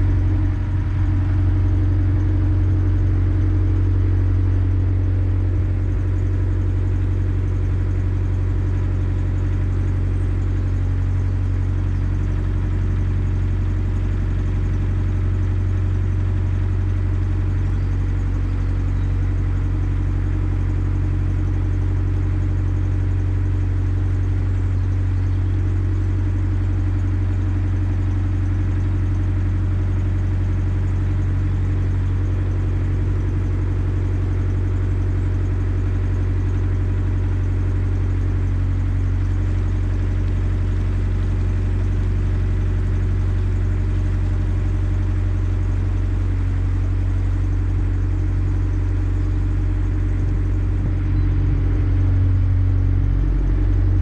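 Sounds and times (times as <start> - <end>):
diesel engine humming: 0.0 - 54.0.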